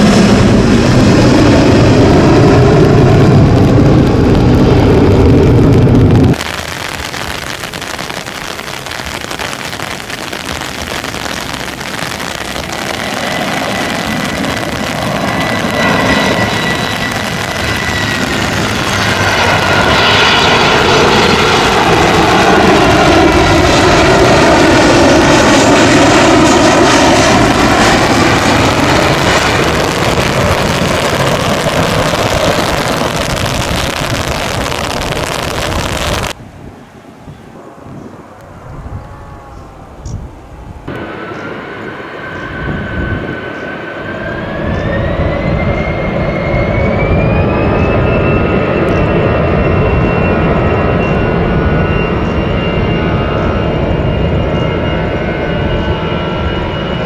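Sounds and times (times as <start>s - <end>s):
high engine whine: 0.0s - 57.0s
jet engines rushing: 0.0s - 57.0s.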